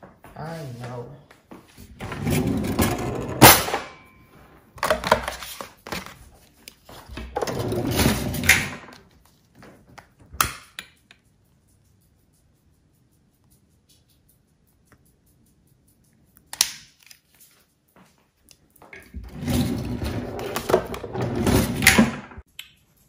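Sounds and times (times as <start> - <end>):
things clattering in drawer: 6.9 - 9.0, 19.0 - 22.2.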